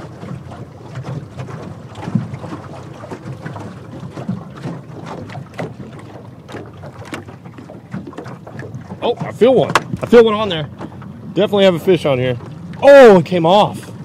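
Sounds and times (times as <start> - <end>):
small splashes: 0.0 - 14.0
water lapping against boat hull: 0.0 - 14.0
wind on microphone: 8.0 - 11.5
small knocks: 9.2 - 10.2.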